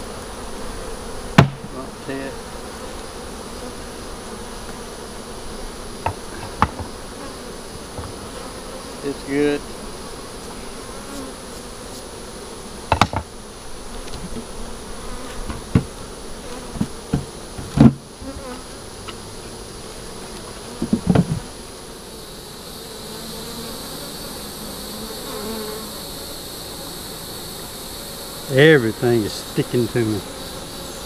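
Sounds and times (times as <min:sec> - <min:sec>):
honeybees buzzing: 0:00.0 - 0:31.0
sharp knocks: 0:01.4 - 0:01.7, 0:06.0 - 0:06.9, 0:12.9 - 0:13.3, 0:16.8 - 0:18.0, 0:20.8 - 0:21.4.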